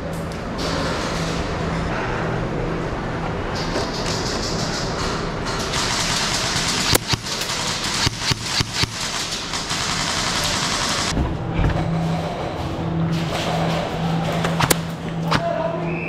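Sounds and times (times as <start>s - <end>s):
steady rushing background noise: 0.0s - 16.0s
airsoft rifle shots: 5.7s - 11.1s, 14.4s - 15.5s.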